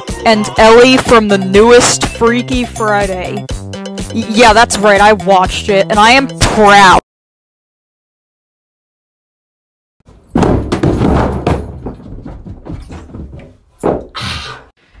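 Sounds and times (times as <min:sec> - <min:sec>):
footsteps on carpeted stairs: 0:10.1 - 0:14.2
sharp knocks: 0:10.1 - 0:14.2.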